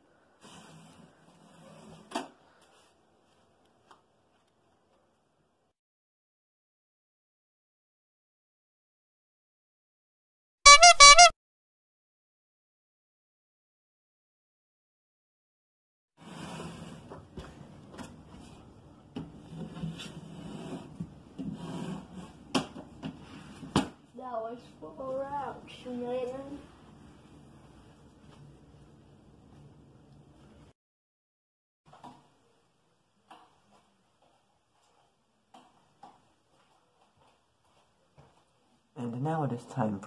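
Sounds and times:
child shuffling across rug: 33.5s - 38.9s.

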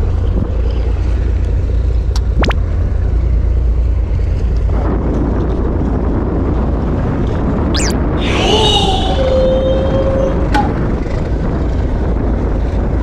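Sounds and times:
boat engine low rumble: 0.0s - 13.0s
wind and sea noise: 0.0s - 13.0s
sharp rising chirp: 7.8s - 9.3s.

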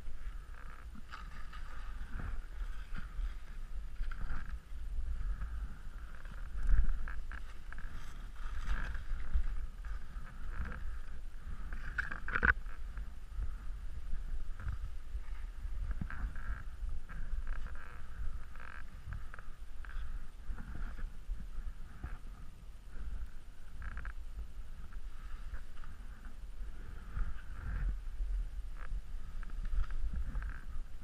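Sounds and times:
skis scraping through snow: 0.0s - 23.8s
wind on microphone: 0.0s - 31.0s.

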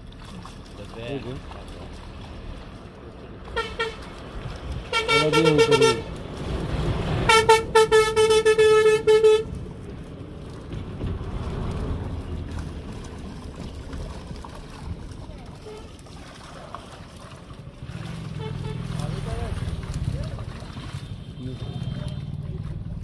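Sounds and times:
water splashing: 0.0s - 23.0s
vehicle horn blasts: 3.6s - 4.0s, 4.9s - 6.1s, 7.3s - 9.5s, 18.4s - 18.8s, 21.1s - 22.3s.

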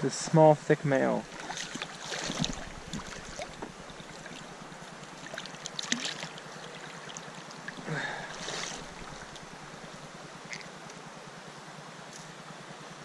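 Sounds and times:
creek water running: 0.0s - 11.1s
fish splashing out of water: 1.2s - 10.7s
small splashes and clicks: 1.3s - 11.0s.

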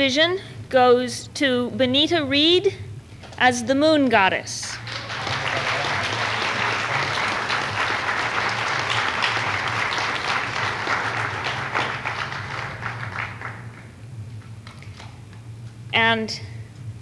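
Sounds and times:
steady low hum: 0.0s - 17.0s
audience applauding: 4.8s - 13.9s.

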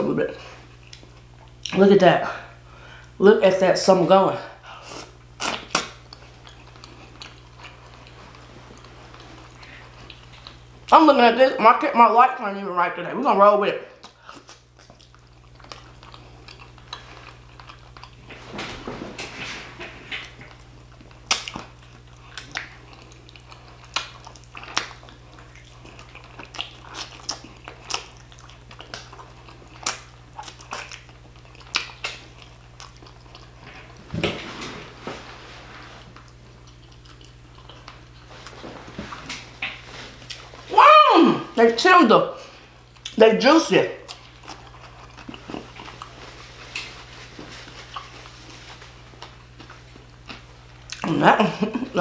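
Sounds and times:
chewing and biting meat: 5.1s - 10.7s, 14.0s - 18.3s, 20.2s - 34.0s, 36.1s - 38.6s, 44.1s - 47.0s.

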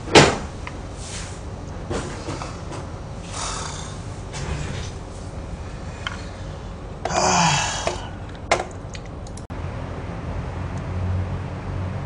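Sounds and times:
low hum: 0.6s - 11.9s
man sighing: 7.0s - 8.3s.

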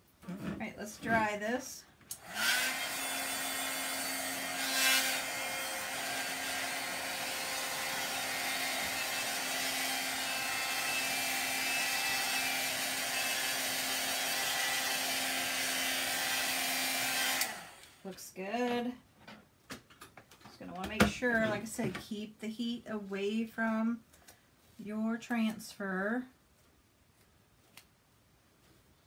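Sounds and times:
heat gun blowing air: 2.1s - 18.1s.

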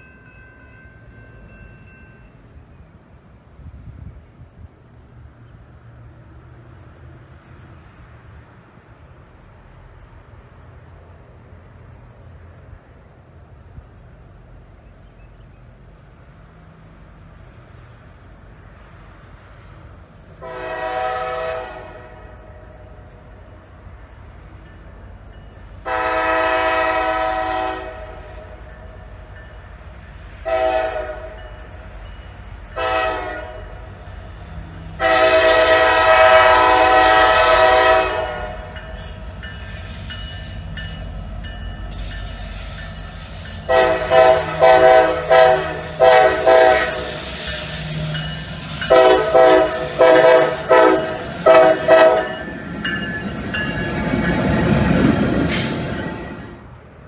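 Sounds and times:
locomotive engine and wheels rumbling: 0.0s - 57.0s
locomotive air horn blasts: 20.4s - 22.8s, 25.8s - 28.6s, 30.4s - 31.4s, 32.8s - 33.8s, 35.0s - 38.8s, 43.6s - 48.1s, 48.7s - 52.4s.

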